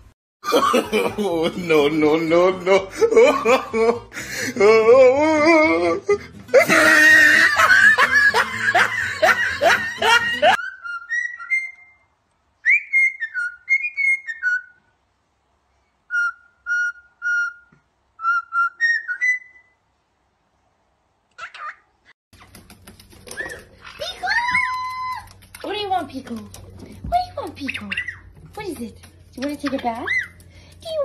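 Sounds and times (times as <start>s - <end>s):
cockatiel whistling a tune: 10.6s - 14.8s, 16.1s - 19.7s.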